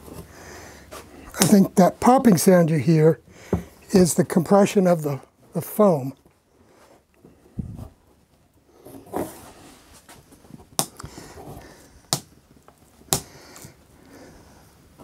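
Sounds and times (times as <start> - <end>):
hardboard rubbing and scraping: 8.8 - 10.2.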